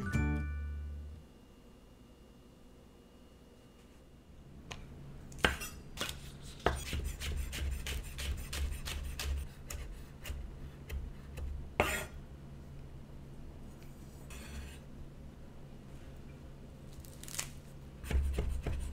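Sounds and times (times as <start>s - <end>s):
knife chopping on wooden board: 5.4s - 12.1s, 18.0s - 18.9s.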